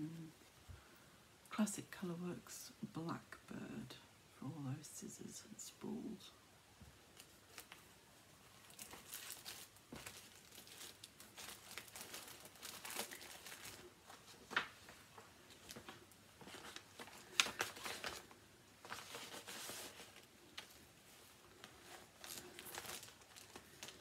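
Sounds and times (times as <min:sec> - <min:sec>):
bags and packaging rustling: 0:07.0 - 0:24.0.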